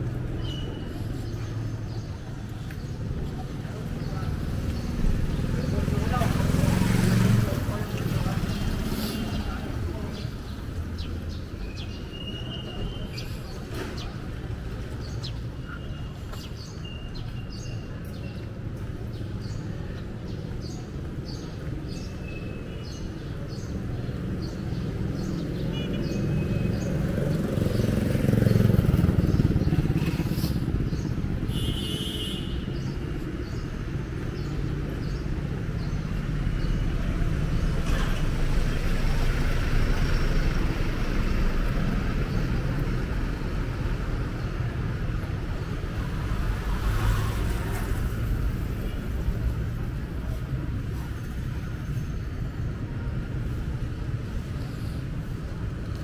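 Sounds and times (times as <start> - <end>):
traffic on wet road: 0.1 - 11.6, 23.2 - 56.0
motorcycle passing close: 4.9 - 9.0, 27.0 - 31.4.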